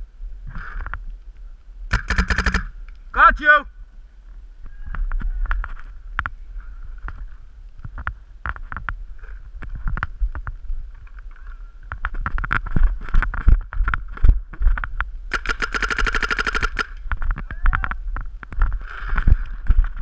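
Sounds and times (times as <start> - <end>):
wind: 0.0 - 20.0
paintball markers firing: 1.9 - 2.7, 15.3 - 17.0.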